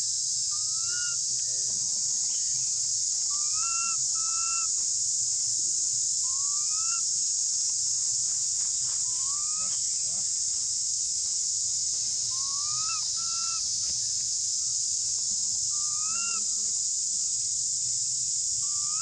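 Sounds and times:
high-pitched insect drone: 0.0s - 19.0s
monkey whistle-like coo calls: 0.6s - 1.2s, 3.3s - 4.7s, 9.1s - 9.8s, 12.4s - 13.6s, 15.8s - 16.4s.

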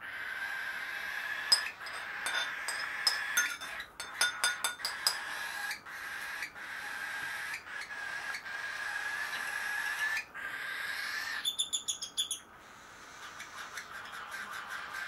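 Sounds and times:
metal spoon clinking on a bowl: 1.5s - 5.4s.

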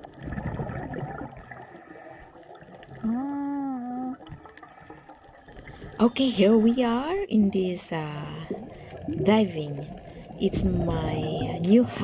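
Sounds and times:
underwater regulator bubbles: 0.0s - 5.0s.

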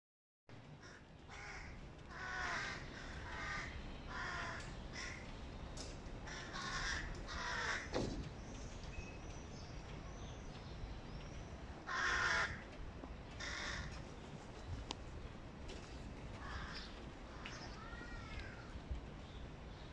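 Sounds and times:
crow fledglings harsh caws: 0.8s - 5.3s, 6.2s - 8.0s, 11.8s - 12.6s, 13.4s - 14.0s, 16.4s - 18.8s.

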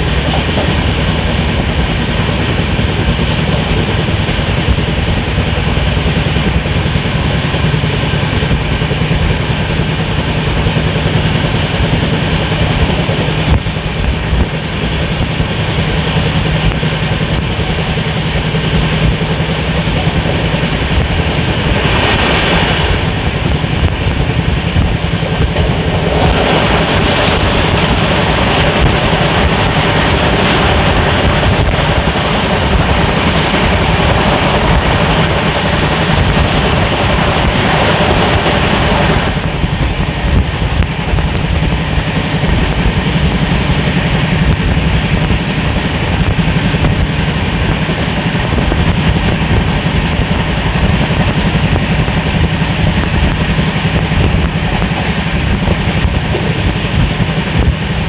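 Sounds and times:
train wheels roaring on rail: 0.0s - 58.0s.

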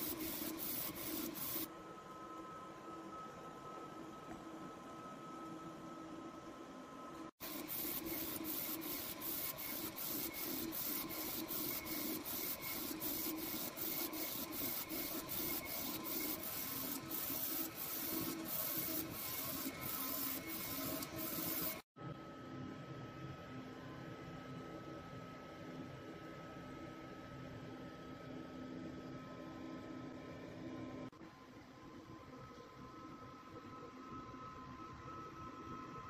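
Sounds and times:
printer carriage sweeping hiss: 7.4s - 21.8s.

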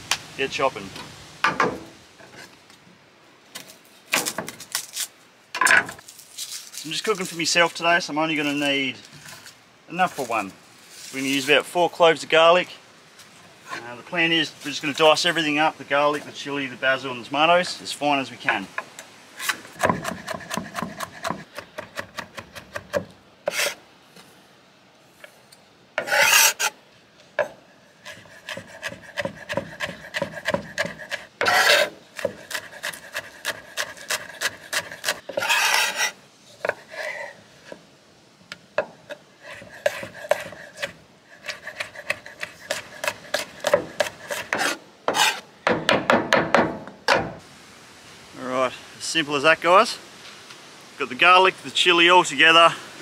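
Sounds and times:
knife chopping on wooden board: 19.8s - 23.1s
blade scraping across board: 23.5s - 23.8s, 26.0s - 26.8s, 28.0s - 37.8s, 39.4s - 45.5s.

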